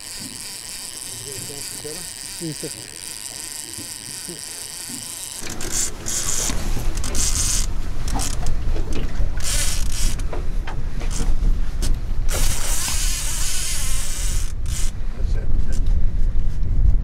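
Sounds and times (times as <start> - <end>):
fishing reel clicking and buzzing: 0.0 - 8.6, 9.4 - 10.3, 12.3 - 14.9
wind buffeting microphone: 5.7 - 17.0.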